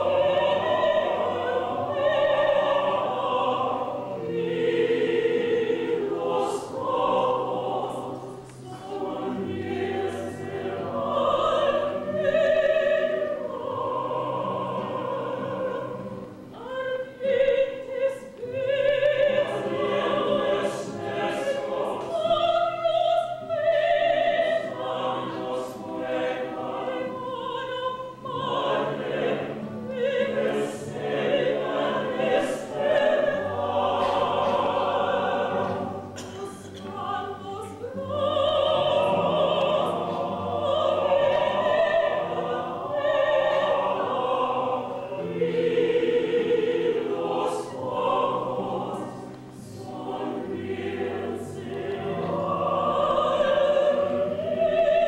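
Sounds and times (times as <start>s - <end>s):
woman singing opera: 0.0s - 49.1s, 49.8s - 55.0s.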